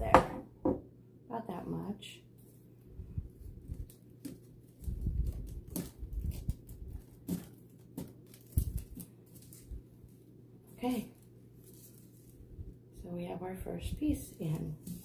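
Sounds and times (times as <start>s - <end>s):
artificial flowers rustling: 2.4s - 13.0s, 13.7s - 15.0s.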